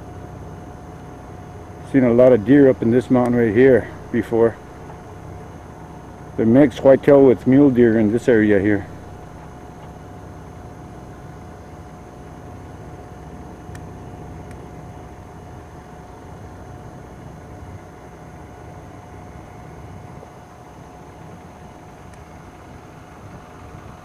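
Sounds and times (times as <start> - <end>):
thin whine: 0.0 - 24.0
truck engine and road noise: 0.0 - 24.0.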